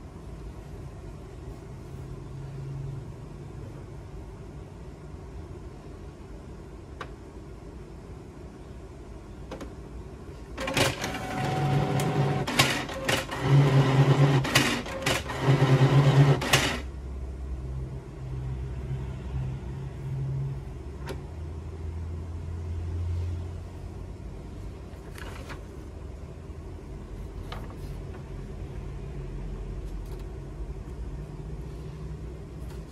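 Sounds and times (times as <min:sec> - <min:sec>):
printer motor whirring: 0:10.6 - 0:16.9.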